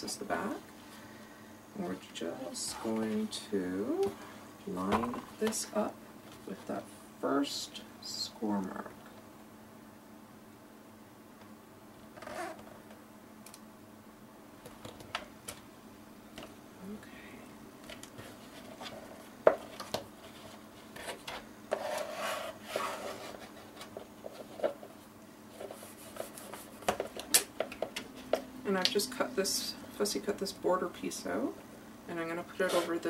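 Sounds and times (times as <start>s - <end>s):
cardstock rustling and scraping: 18.0s - 27.3s, 32.6s - 33.0s.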